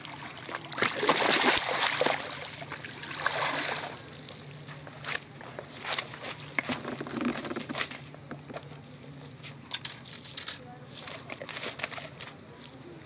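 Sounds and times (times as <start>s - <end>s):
water splashing from thrashing fish: 0.0s - 4.2s.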